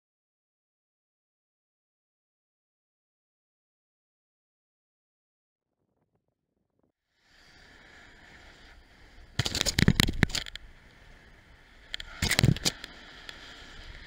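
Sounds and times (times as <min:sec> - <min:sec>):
road and wind noise: 0:07.4 - 0:14.0.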